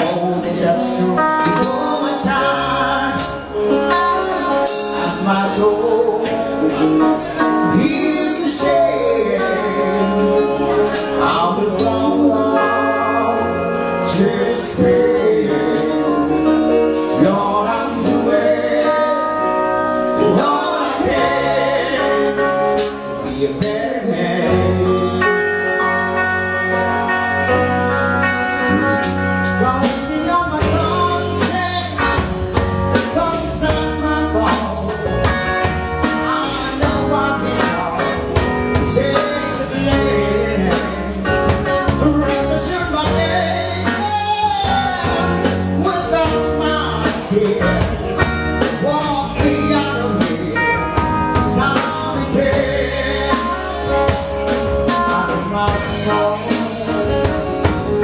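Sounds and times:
live band playing: 0.0 - 58.0
steady drum beat: 29.0 - 58.0.

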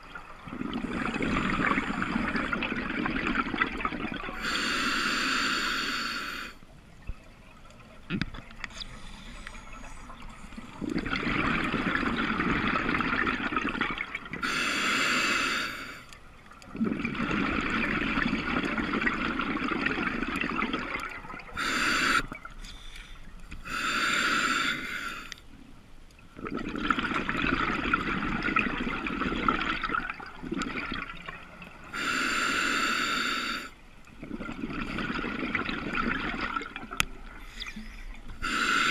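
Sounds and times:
bubbling exhales underwater: 0.3 - 4.5, 10.7 - 14.4, 16.7 - 22.5, 26.4 - 31.4, 34.2 - 37.0
regulator hissing inhales: 4.4 - 6.6, 14.4 - 16.2, 21.6 - 25.4, 32.0 - 33.8, 37.4 - 38.9.

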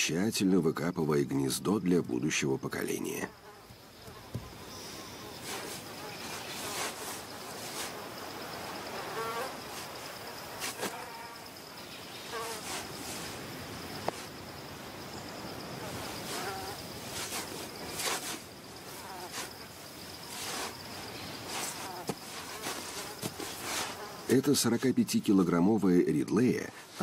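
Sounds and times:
high-pitched insect drone: 3.4 - 24.4
sand scraping: 4.4 - 11.3, 12.2 - 14.4, 15.8 - 24.9.

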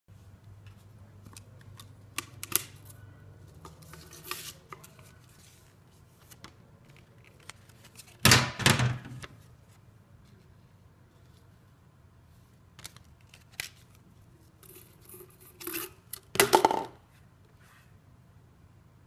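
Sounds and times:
paper rustling: 3.5 - 8.3.

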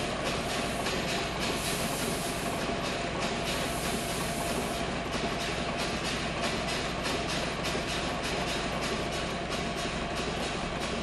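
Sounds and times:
steam engine ticking: 0.1 - 11.0
steam engine hissing: 0.4 - 2.6, 3.4 - 4.9.

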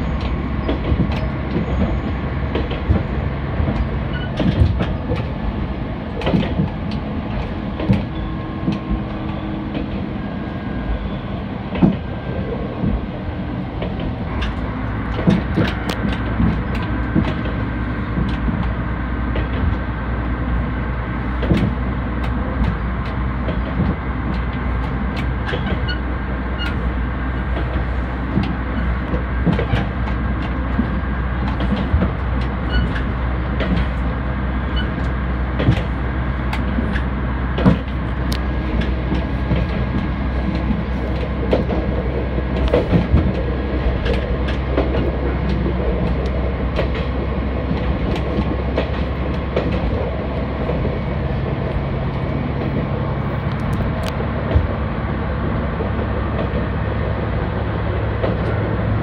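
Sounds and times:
railcar engine drone: 0.0 - 59.0
train rolling noise: 0.0 - 59.0
wheels clicking over rail joints: 0.0 - 59.0.

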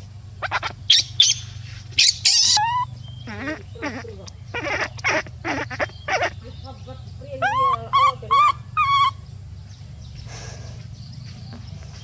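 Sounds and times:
animal harsh cries: 0.4 - 6.4, 7.3 - 9.2
animal rising pitched calls: 0.4 - 6.4, 7.4 - 9.2.

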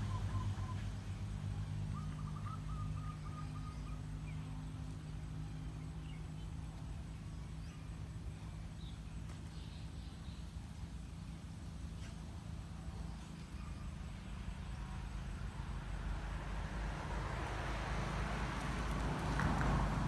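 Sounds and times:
faint bird chirps: 0.0 - 6.6, 12.9 - 14.4
passing vehicle engine hum: 0.0 - 20.0
bird trilling: 1.9 - 4.1.

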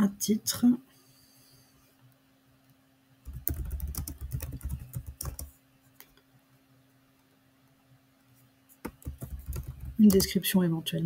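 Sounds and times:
typing on computer keyboard: 3.3 - 5.5, 8.8 - 10.4.

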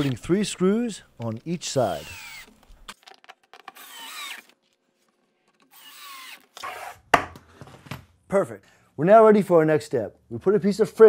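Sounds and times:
cordless drill driving screws: 0.0 - 0.2, 1.6 - 3.0, 3.7 - 4.6, 5.7 - 7.0.

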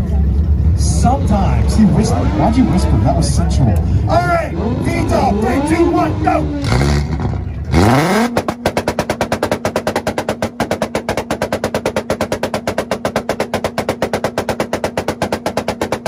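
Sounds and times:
engine revving on limiter: 0.6 - 9.2
rapid ignition cut popping: 4.6 - 16.0.

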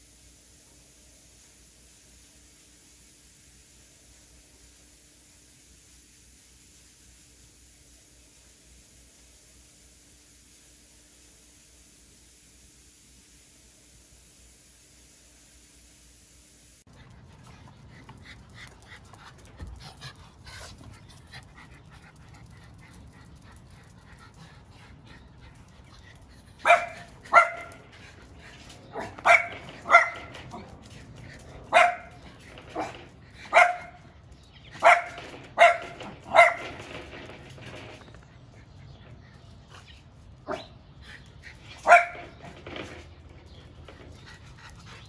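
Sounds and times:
dog barking: 26.6 - 27.8, 29.0 - 30.3, 31.7 - 32.2, 32.8 - 34.0, 34.8 - 36.7, 41.8 - 42.2.

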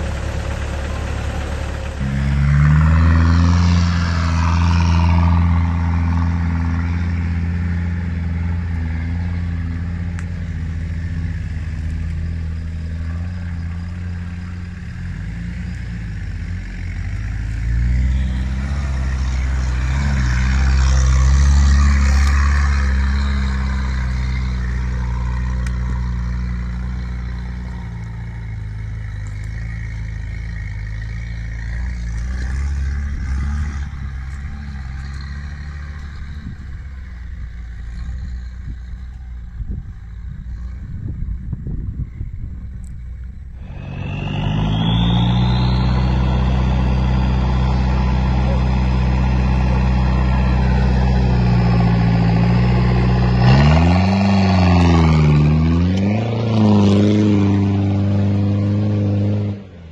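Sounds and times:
diesel engines at low revs: 0.0 - 59.9.

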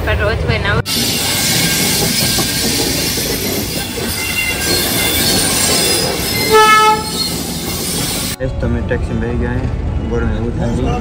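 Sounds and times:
train wheels rumbling on track: 0.0 - 11.0
wheel squeals: 0.9 - 8.4
train horn blast: 6.4 - 7.3.

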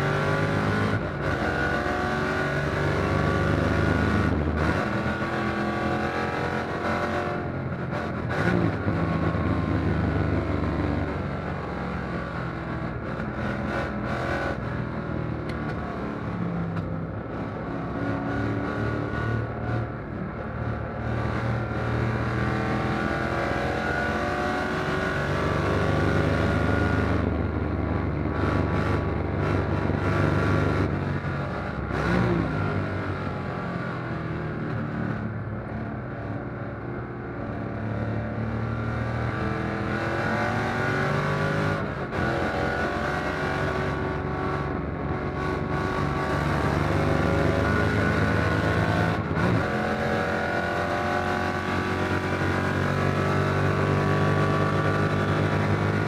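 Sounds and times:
race car engine revving: 38.3 - 56.0.

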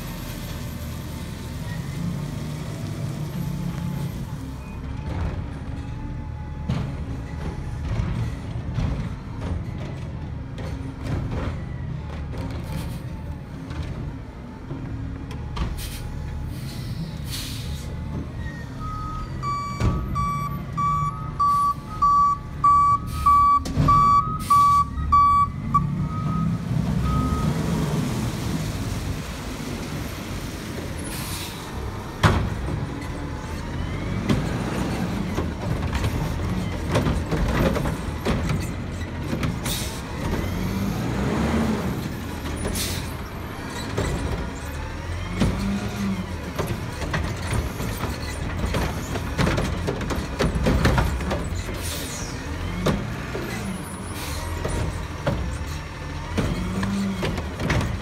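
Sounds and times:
diesel garbage truck running: 0.0 - 58.0
air brakes hissing: 15.8 - 18.0, 31.0 - 31.7, 42.7 - 43.2
reversing alarm beeping: 18.8 - 27.6.

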